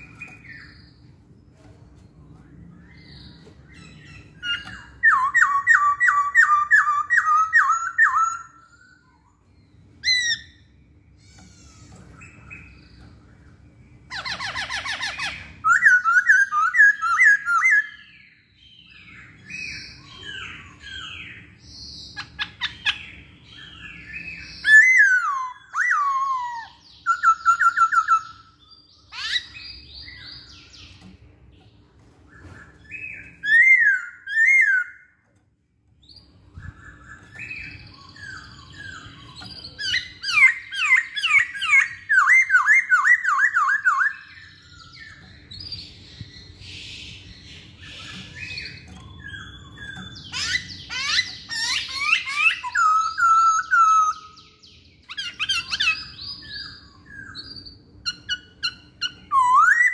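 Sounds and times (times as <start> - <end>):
bird singing whistled phrases: 2.3 - 9.4, 14.1 - 18.2, 23.6 - 30.8, 32.4 - 35.2, 36.2 - 45.9, 47.8 - 59.9.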